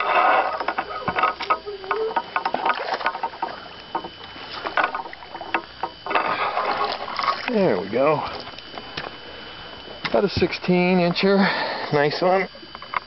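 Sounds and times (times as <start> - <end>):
gear knocking and clicking in boat: 0.0 - 7.7, 10.0 - 11.4.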